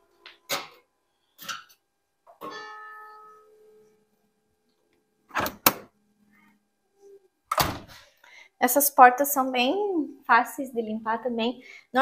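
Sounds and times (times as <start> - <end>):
ringing tone: 2.4 - 3.8.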